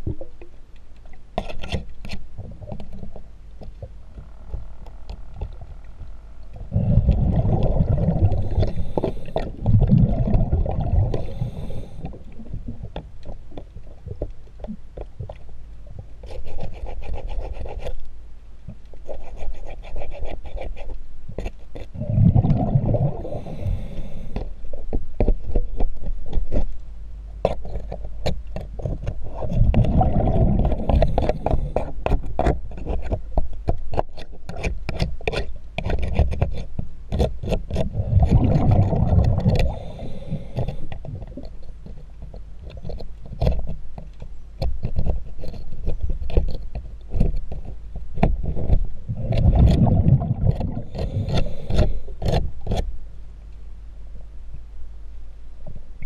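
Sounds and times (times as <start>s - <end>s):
scraper scraping boat hull underwater: 1.2s - 18.1s, 18.7s - 26.8s, 27.4s - 53.0s
exhaled bubbles rumbling: 3.8s - 14.2s, 21.9s - 24.3s, 29.3s - 31.8s, 37.9s - 41.6s, 48.4s - 51.9s.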